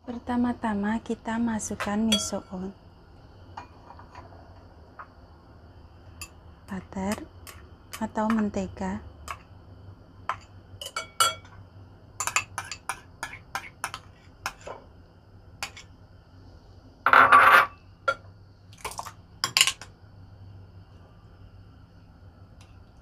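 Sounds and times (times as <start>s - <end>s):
utensils clinking against bowls: 1.8s - 2.6s, 10.3s - 11.6s, 12.2s - 14.6s.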